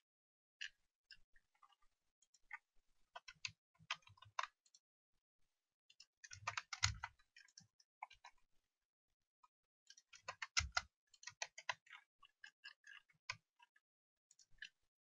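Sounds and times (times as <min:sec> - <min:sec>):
keyboard and mouse clicking: 0:06.2 - 0:08.3, 0:09.9 - 0:12.0.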